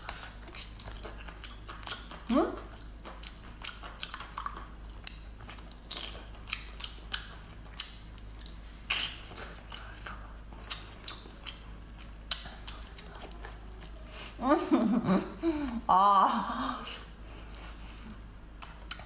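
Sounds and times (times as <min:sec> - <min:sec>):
wet chewing clicks and smacks: 0:00.0 - 0:14.0, 0:18.6 - 0:19.0.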